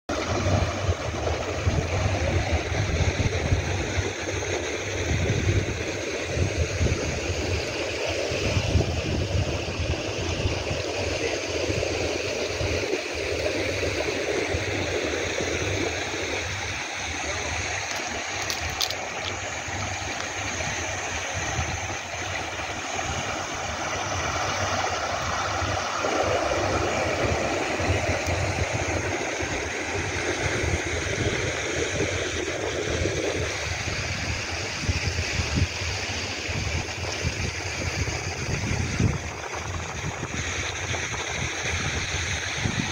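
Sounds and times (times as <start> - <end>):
sea water washing ashore: 0.1 - 42.9
wind buffeting microphone: 0.1 - 42.9.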